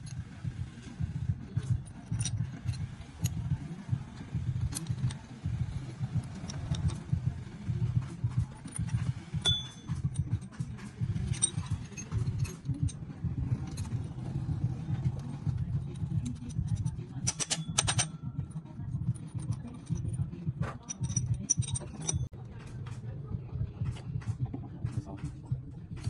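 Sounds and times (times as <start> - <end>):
low uneven rumble: 0.2 - 17.2
metallic clinks of tools: 1.5 - 3.7, 8.2 - 14.0, 15.9 - 22.4.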